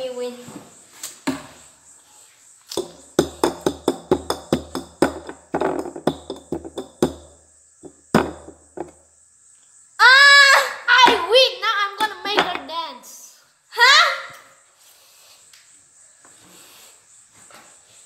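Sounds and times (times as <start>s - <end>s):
bowls knocking on hard surface: 2.8s - 9.0s, 12.0s - 12.7s.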